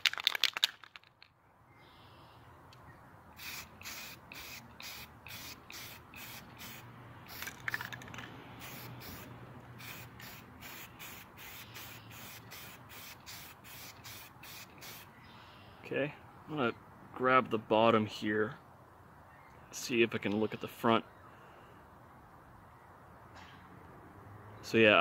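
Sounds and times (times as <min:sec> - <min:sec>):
aerosol spray bursts: 0:03.4 - 0:07.5, 0:08.6 - 0:15.1.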